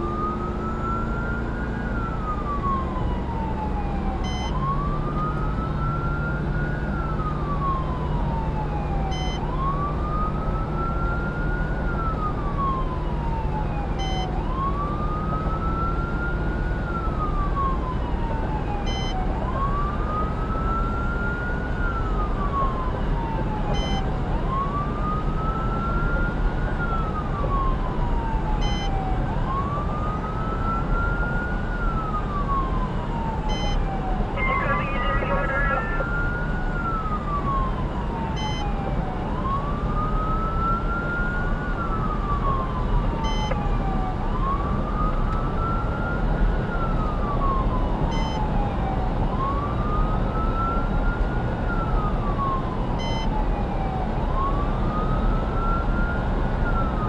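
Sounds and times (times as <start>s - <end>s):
road and engine noise: 0.0s - 57.0s
siren wailing: 26.9s - 51.0s.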